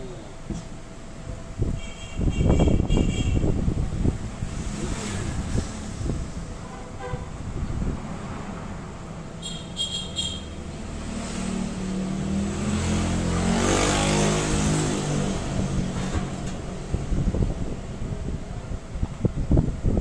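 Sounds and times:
vehicle engine passing: 3.5s - 18.4s.

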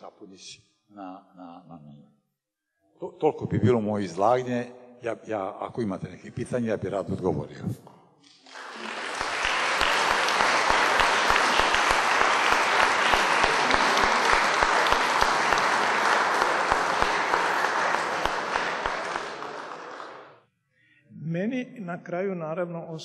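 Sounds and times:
audience applauding: 8.3s - 20.4s.

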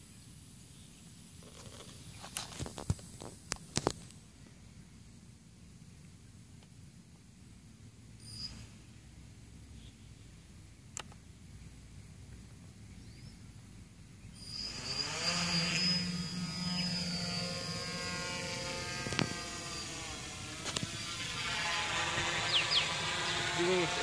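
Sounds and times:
quadcopter motors whining: 8.2s - 8.9s, 14.3s - 24.0s.

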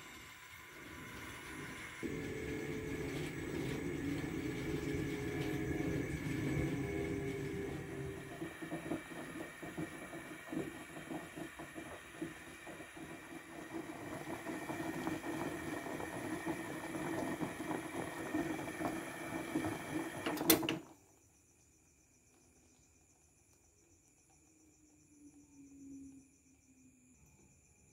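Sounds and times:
water boiling and bubbling: 0.0s - 20.8s.

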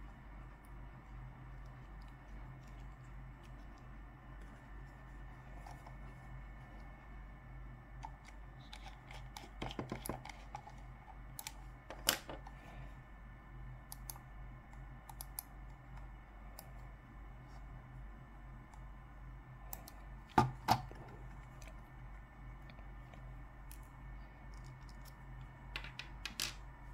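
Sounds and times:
steady low hum: 0.0s - 26.9s
computer mouse clicks: 8.0s - 11.6s, 13.9s - 16.9s, 19.7s - 20.0s.

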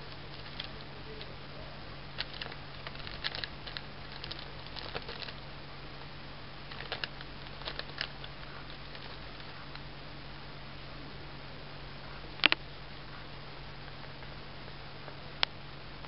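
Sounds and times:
plastic bag crinkling: 0.0s - 1.3s, 2.2s - 5.4s, 6.7s - 9.7s.

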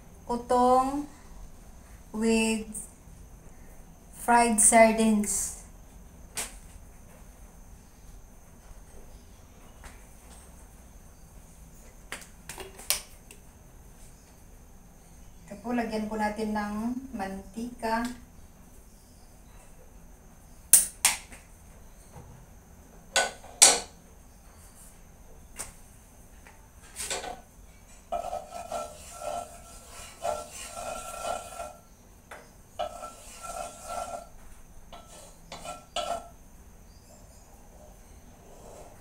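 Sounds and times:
sharp knocks and clicks: 23.1s - 23.9s
wooden spatula scraping a wok: 26.9s - 36.4s, 37.1s - 39.0s.

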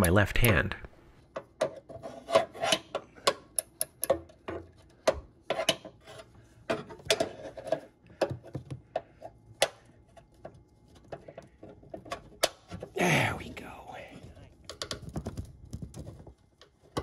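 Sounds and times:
sharp metal clicks and taps: 3.2s - 4.3s.

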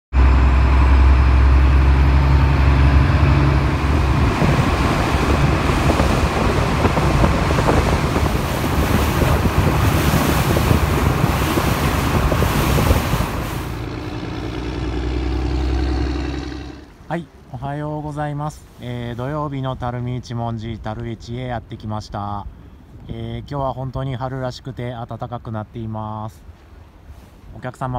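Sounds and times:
boat engine drone: 0.1s - 21.3s
wind buffeting microphone: 0.2s - 17.1s
water rushing past hull: 0.2s - 24.8s, 25.4s - 27.9s.

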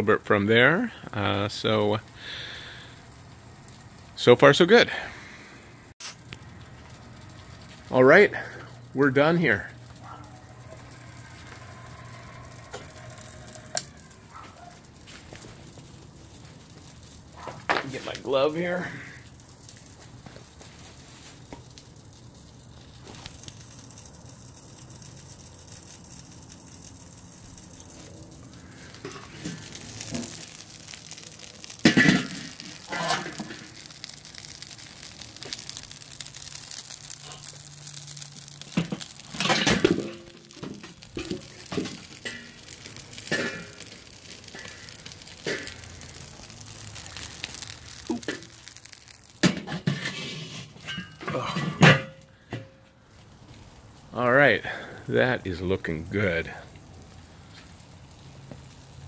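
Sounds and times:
metal grill lid clanking: 31.6s - 33.9s, 38.6s - 43.8s, 49.4s - 52.7s.

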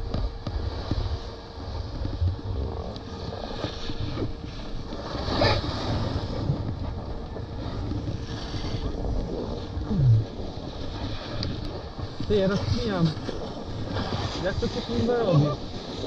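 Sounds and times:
wind buffeting microphone: 0.0s - 16.0s
snowboard edge scraping snow: 0.5s - 6.6s, 10.8s - 16.0s.

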